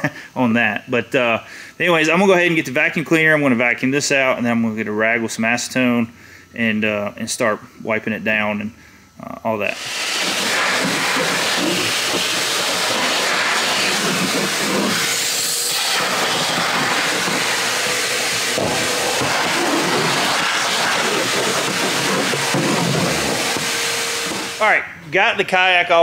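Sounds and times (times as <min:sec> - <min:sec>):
vacuum cleaner hissing: 0:09.6 - 0:24.8.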